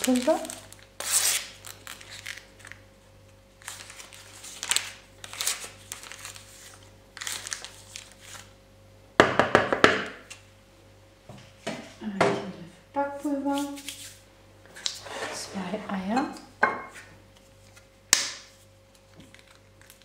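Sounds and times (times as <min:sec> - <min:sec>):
paper sachet crinkling and tearing: 0:00.0 - 0:02.8, 0:03.5 - 0:08.6, 0:18.5 - 0:20.0
metal spoon scraping plastic bowl: 0:14.9 - 0:16.4.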